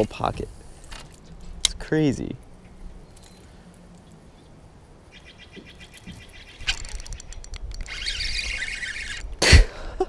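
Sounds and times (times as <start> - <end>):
spinning reel ticking: 6.6 - 9.2
fishing line rushing hiss: 7.9 - 9.2.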